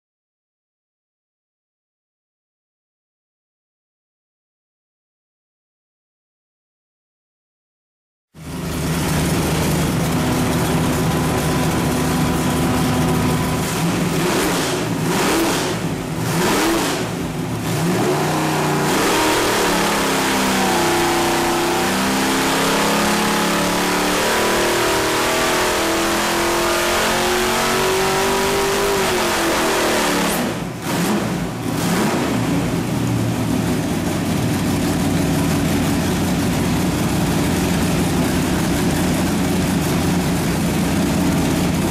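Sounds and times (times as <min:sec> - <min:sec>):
engine revving on a dyno: 0:08.4 - 0:34.4.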